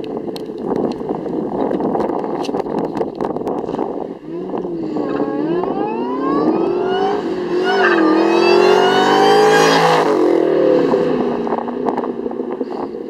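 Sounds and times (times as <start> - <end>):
car engine accelerating past: 4.3 - 11.2.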